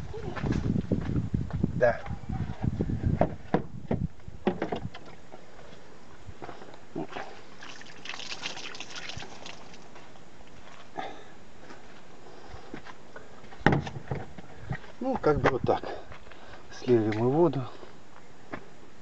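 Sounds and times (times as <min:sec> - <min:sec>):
knocks and bumps of handling: 0:03.2 - 0:05.2, 0:13.6 - 0:14.8
water poured and splashing: 0:07.5 - 0:10.6.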